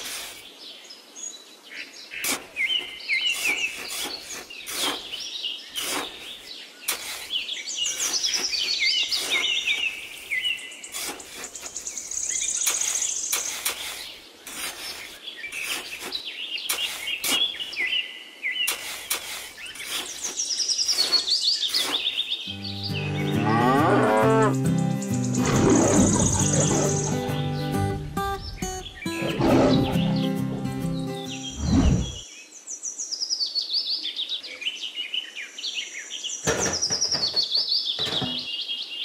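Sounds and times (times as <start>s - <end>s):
birds chirping: 0.0s - 39.0s
high bird trill: 20.9s - 32.2s.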